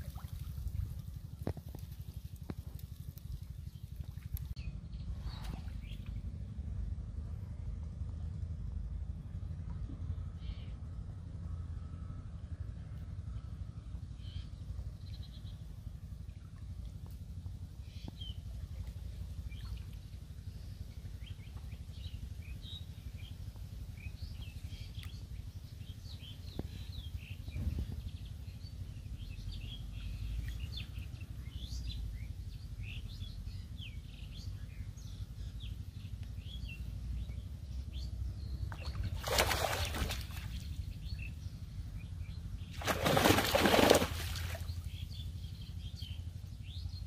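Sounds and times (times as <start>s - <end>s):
steady low rumble: 0.0s - 47.0s
small birds chirping: 17.8s - 47.0s.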